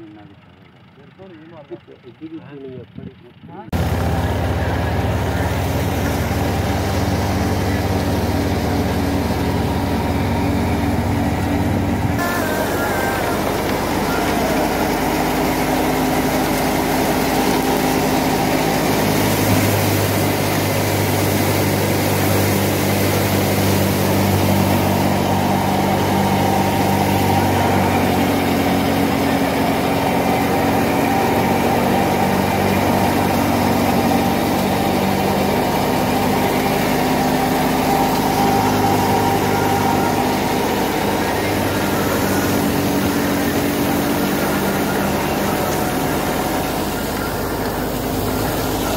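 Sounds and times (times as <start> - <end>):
threshing machine engine drone: 0.0 - 48.9.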